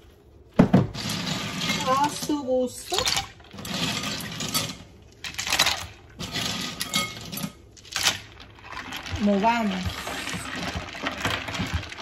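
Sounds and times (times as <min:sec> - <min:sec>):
ice cubes clinking on glass: 0:03.0 - 0:12.0.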